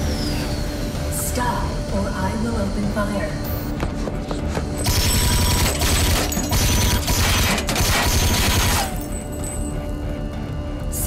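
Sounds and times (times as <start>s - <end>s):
rapid automatic gunfire: 4.8s - 8.9s.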